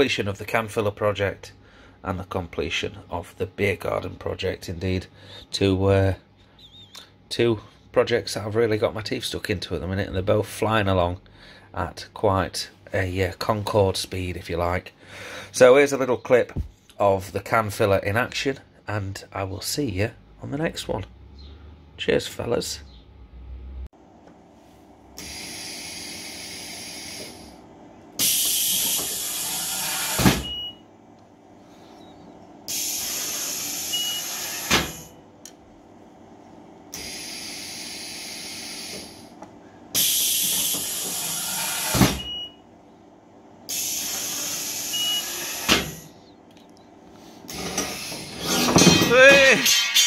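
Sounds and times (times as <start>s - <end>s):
pressurised gas hissing: 25.2s - 27.6s, 28.2s - 30.4s, 32.7s - 35.1s, 36.9s - 39.3s, 39.9s - 42.3s, 43.7s - 46.2s, 47.2s - 48.7s.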